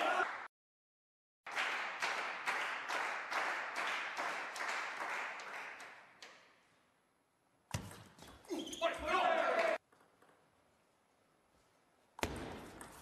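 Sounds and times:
people clapping: 0.0s - 0.5s, 1.5s - 6.4s, 9.3s - 9.8s.

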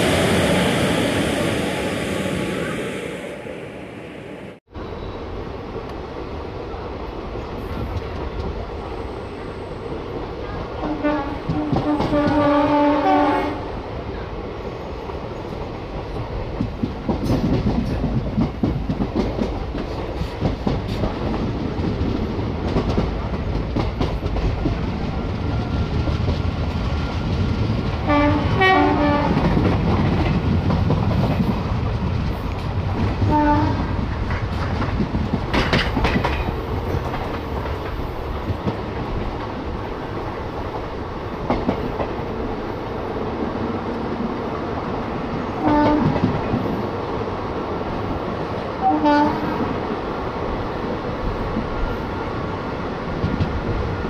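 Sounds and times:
train horn: 10.8s - 13.7s, 28.0s - 29.5s, 33.2s - 33.9s, 45.6s - 46.2s, 48.8s - 49.6s
train wheels clattering: 15.5s - 39.6s.

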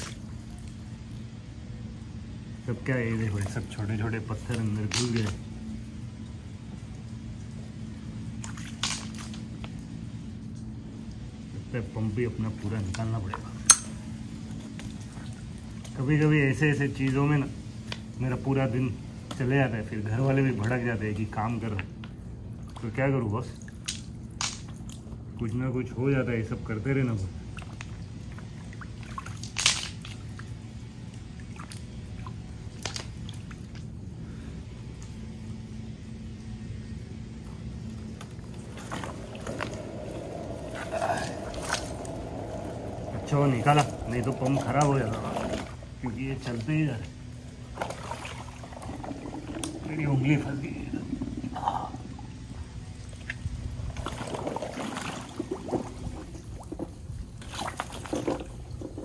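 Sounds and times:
water splashing and gurgling: 0.0s - 1.3s, 27.3s - 34.2s, 36.4s - 59.0s
steady low hum: 0.0s - 59.0s.

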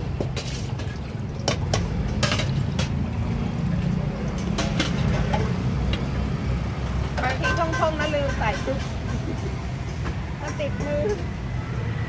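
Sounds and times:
ladle clinking against metal bowls: 0.0s - 3.2s, 4.2s - 5.6s, 7.1s - 11.3s
street traffic rumble: 0.0s - 12.0s.

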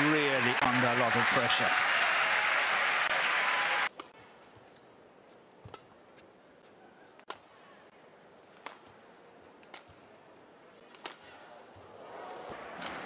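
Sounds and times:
arena crowd noise: 0.0s - 4.2s, 10.8s - 13.0s
quiet hall ambience: 4.0s - 13.0s.

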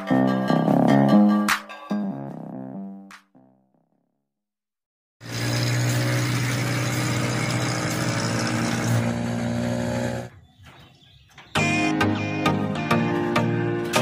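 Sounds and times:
engine running: 5.2s - 10.4s.

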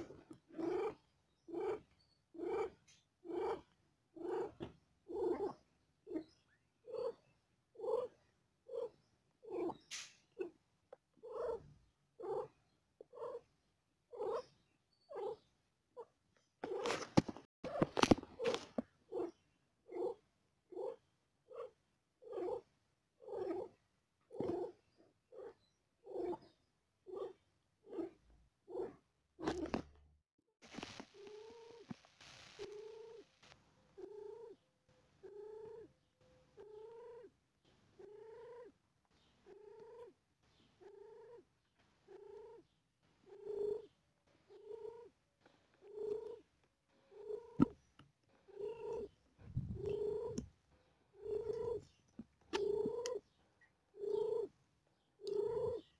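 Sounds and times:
cat purring: 0.0s - 6.3s, 7.8s - 9.8s, 34.0s - 34.6s, 35.2s - 35.9s, 36.6s - 37.3s, 38.0s - 38.8s, 39.4s - 54.6s, 55.2s - 55.9s.

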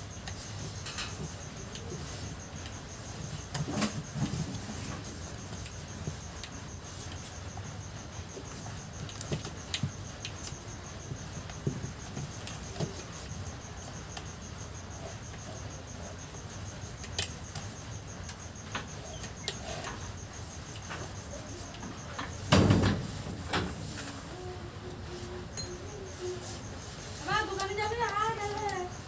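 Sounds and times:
faint high pulsing chirp: 25.2s - 27.2s.

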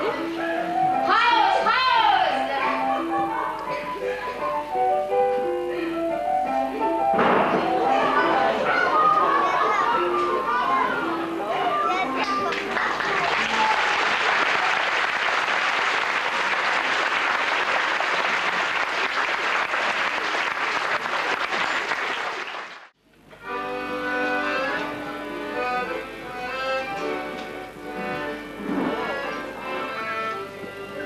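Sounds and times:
audience applauding: 12.2s - 23.0s
accordion slow melody: 23.1s - 31.0s.

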